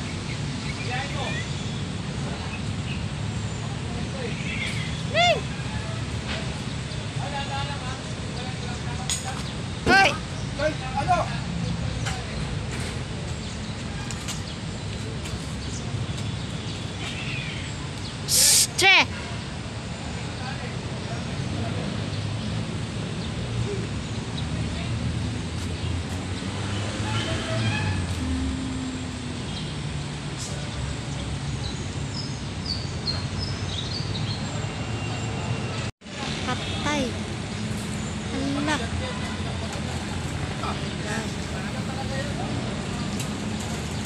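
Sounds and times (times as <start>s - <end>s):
birds chirping: 0.0s - 39.7s
truck engine rumbling: 2.0s - 33.3s.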